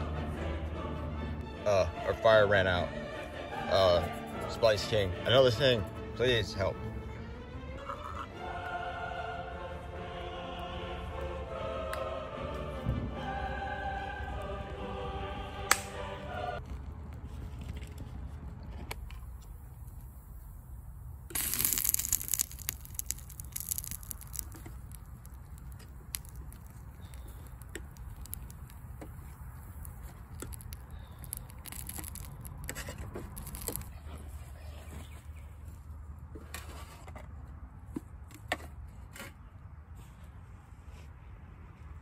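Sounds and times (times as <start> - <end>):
campfire crackling and popping: 15.6 - 34.0.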